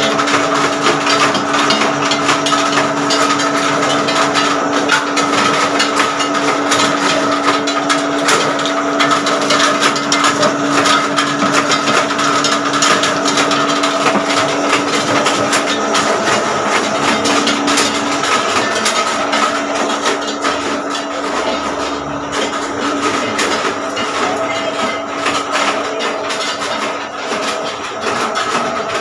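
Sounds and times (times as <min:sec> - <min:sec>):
machine motor hum: 0:00.0 - 0:29.0.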